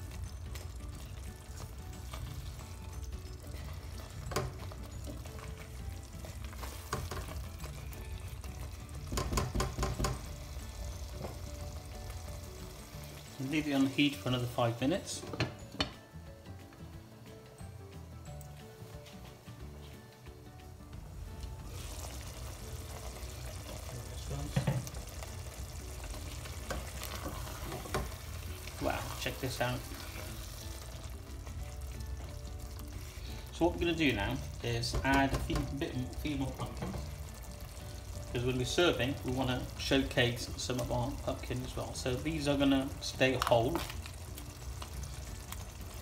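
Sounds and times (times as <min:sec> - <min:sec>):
curry sizzling in a pot: 0:00.0 - 0:46.0
spatula scraping and knocking pot: 0:06.5 - 0:07.6, 0:09.0 - 0:10.4, 0:26.6 - 0:28.3
knock: 0:09.1 - 0:10.2.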